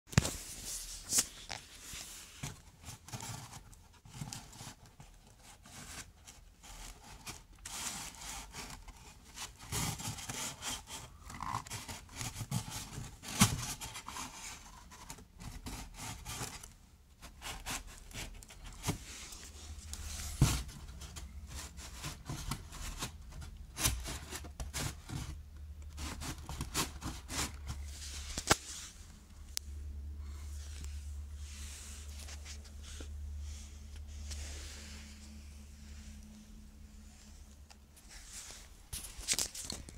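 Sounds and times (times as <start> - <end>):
handling rubbing and scraping: 0.1 - 29.3, 30.4 - 36.5
low steady hum: 0.1 - 39.9.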